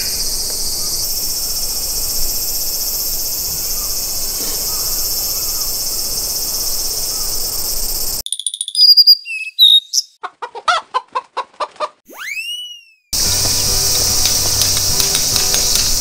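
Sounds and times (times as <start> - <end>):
high insect buzz: 0.0 - 8.2, 13.2 - 16.0
cartoon logo chirps and whistles: 8.2 - 10.2, 12.1 - 13.2.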